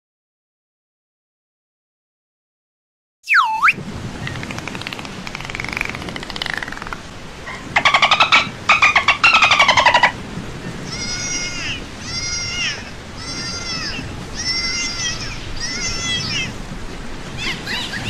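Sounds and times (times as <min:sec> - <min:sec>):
dolphin whistles: 0:03.3 - 0:04.4, 0:07.5 - 0:10.2
dolphin clicking: 0:03.4 - 0:10.2
buzzing click trains: 0:04.2 - 0:10.2.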